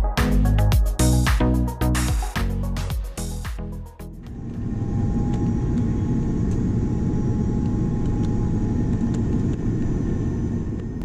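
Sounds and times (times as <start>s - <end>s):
jet engine rumble: 4.2s - 11.0s.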